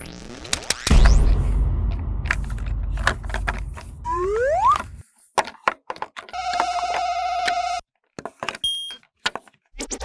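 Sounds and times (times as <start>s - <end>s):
plastic bricks clicking: 2.3s - 9.7s.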